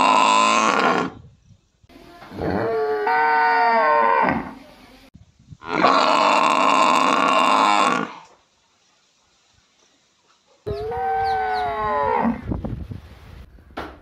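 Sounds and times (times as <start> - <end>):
water buffalo calling: 10.7 - 12.4.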